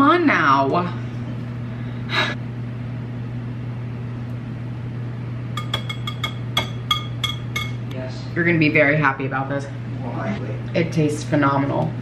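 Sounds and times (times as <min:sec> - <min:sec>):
steady low hum: 0:00.0 - 0:12.0
whisk clinking against bowl: 0:05.6 - 0:07.8.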